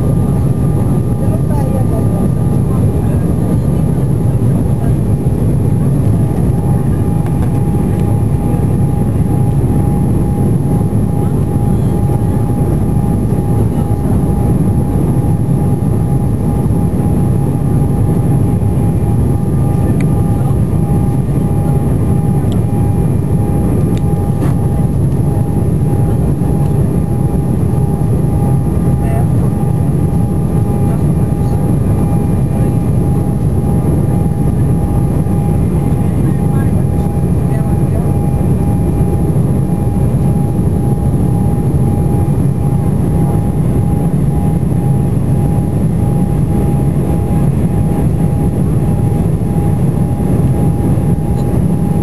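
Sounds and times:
jet engine rumble: 0.0 - 52.0
thin steady whine: 0.0 - 52.0.

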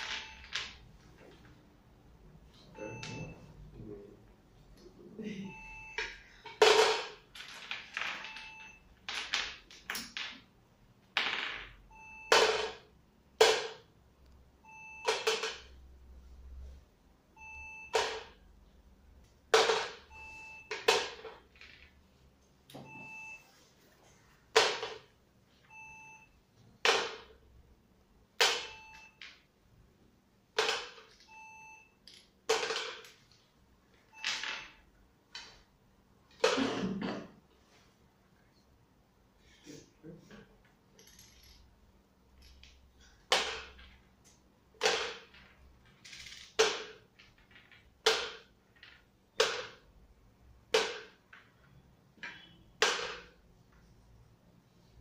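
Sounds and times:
short faint beeps: 5.3 - 6.0
toy pieces knocking: 44.8 - 49.8.

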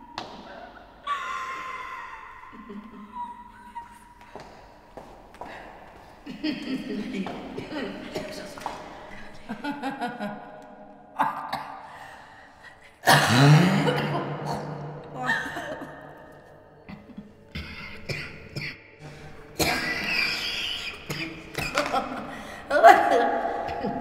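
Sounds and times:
loud rising cry: 1.0 - 2.8
person coughing and gasping: 13.0 - 16.1, 16.9 - 22.6.

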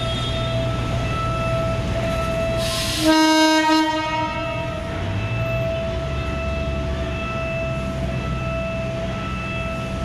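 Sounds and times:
train horn blast: 2.6 - 4.6.

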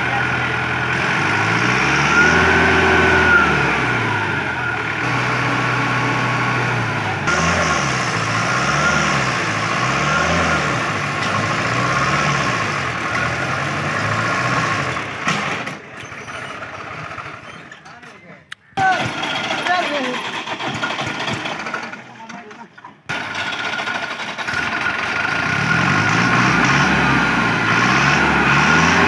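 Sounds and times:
tractor diesel engine labouring: 0.0 - 29.0.

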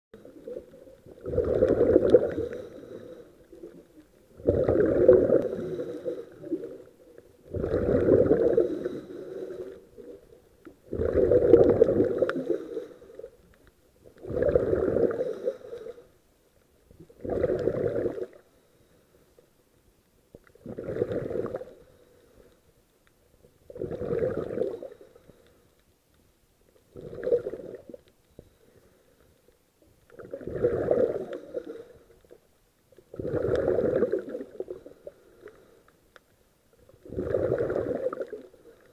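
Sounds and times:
exhaled bubbles rushing: 0.2 - 2.9, 3.5 - 9.0, 10.8 - 12.6, 14.2 - 15.3, 17.0 - 18.4, 20.6 - 21.8, 23.7 - 25.0, 26.9 - 28.0, 30.1 - 31.6, 33.1 - 35.0, 37.0 - 38.6
diver breathing through regulator: 1.3 - 3.8, 4.5 - 6.9, 7.5 - 10.1, 11.0 - 13.4, 14.3 - 16.2.

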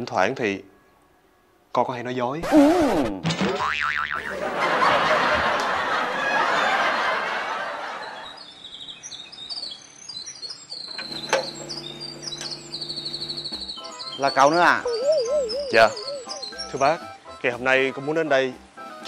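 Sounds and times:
birds chirping: 4.2 - 17.3
gate bolt click: 10.9 - 11.8.

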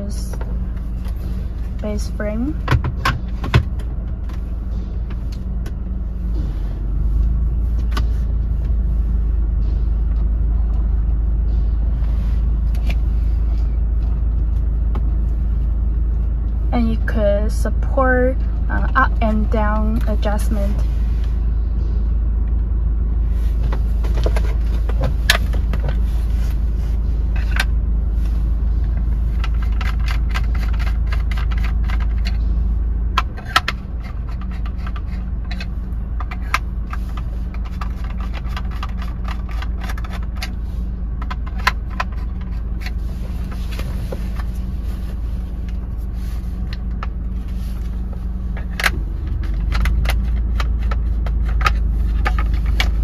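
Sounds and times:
steady low rumble: 0.0 - 53.0.

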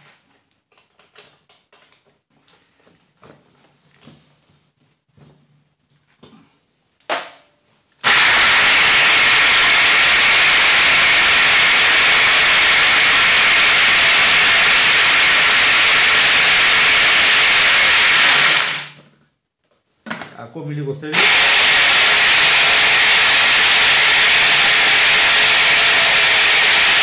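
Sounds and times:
drill-driven blender grinding: 8.0 - 19.0, 21.1 - 27.0.

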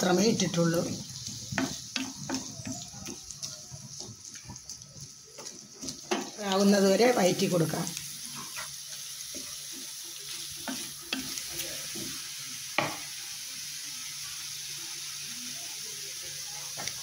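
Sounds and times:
vegetables sizzling in hot oil: 0.0 - 17.0.

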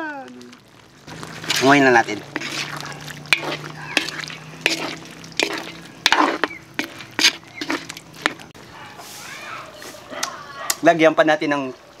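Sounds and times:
stew bubbling: 0.0 - 8.8
spatula scraping a wok: 1.1 - 10.0.

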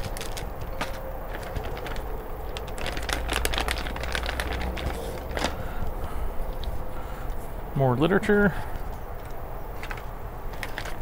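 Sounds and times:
plastic bags crinkling: 0.0 - 5.7.

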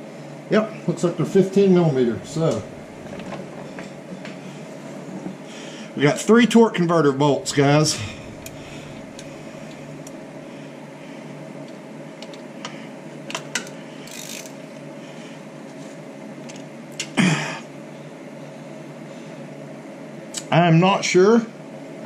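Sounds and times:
steady hum: 0.0 - 13.0
ratchet and wrench metal clicks: 14.1 - 14.5.

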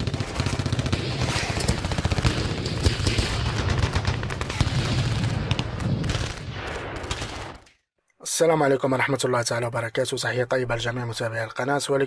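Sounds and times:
rapid gunfire-like cracks: 0.0 - 7.7.

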